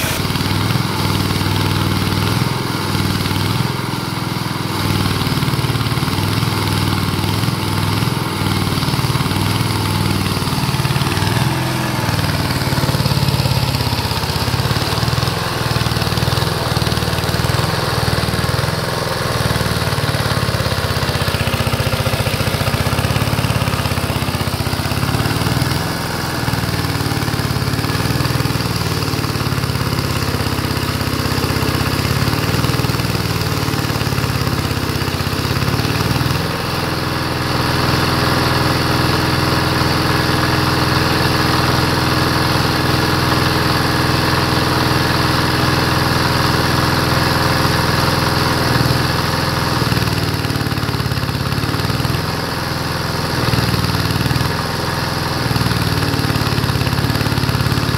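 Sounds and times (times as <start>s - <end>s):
welding arc crackling and hissing: 0.0s - 38.2s
small engine running: 0.0s - 57.9s.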